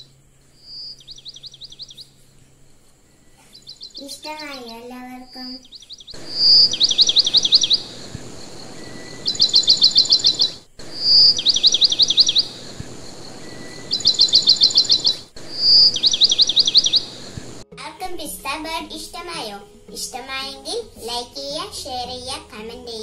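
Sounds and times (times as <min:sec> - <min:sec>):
steady background hiss: 0:00.0 - 0:23.0
bird whistle and trill: 0:00.6 - 0:02.2, 0:05.2 - 0:17.6.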